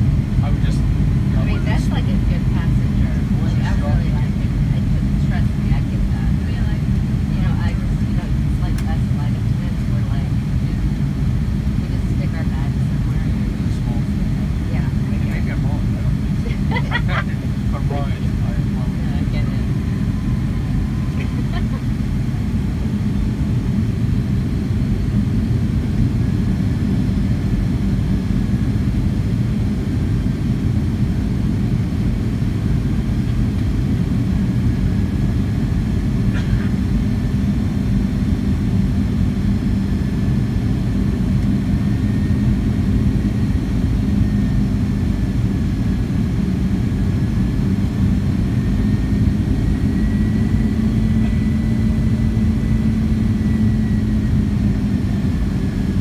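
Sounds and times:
airplane engines droning: 0.0s - 56.0s
faint engine whine: 0.0s - 56.0s.

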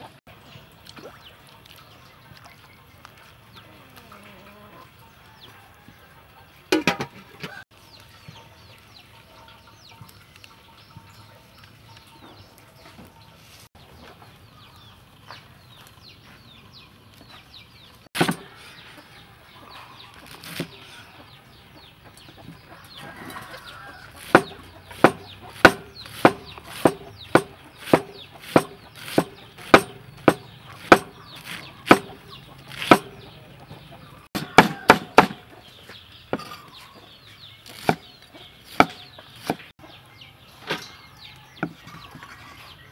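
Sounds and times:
chickens clucking: 2.1s - 42.9s
cleaver chopping on wooden board: 18.2s - 18.5s, 24.2s - 33.2s, 34.4s - 35.4s, 37.7s - 38.1s, 38.7s - 39.7s.

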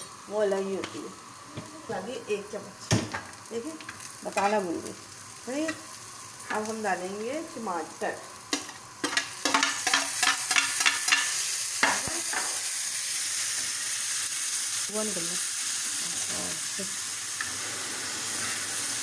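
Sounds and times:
food sizzling in a pan: 0.0s - 19.0s.

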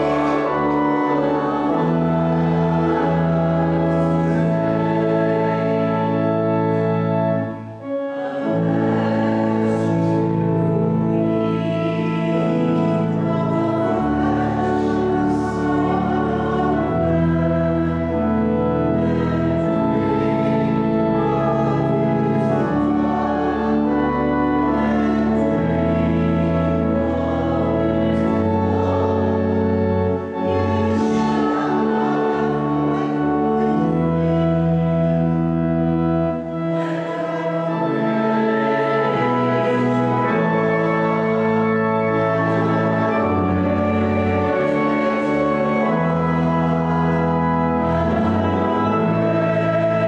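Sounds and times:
congregation singing a hymn: 0.0s - 50.0s
organ chords: 0.0s - 50.0s.

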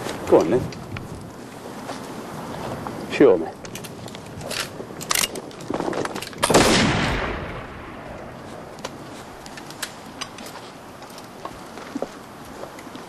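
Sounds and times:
rifle shot with echo: 6.4s - 8.2s.

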